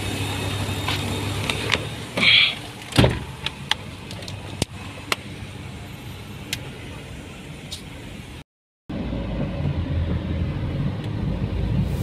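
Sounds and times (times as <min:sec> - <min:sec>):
car door closing thump: 0:02.9 - 0:03.3.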